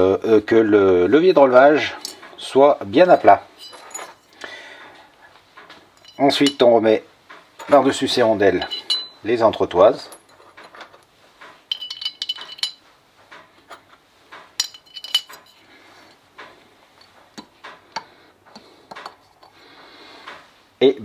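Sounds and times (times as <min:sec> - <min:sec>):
metal washers clinking: 0:02.0 - 0:04.4, 0:05.9 - 0:06.9, 0:07.5 - 0:16.2.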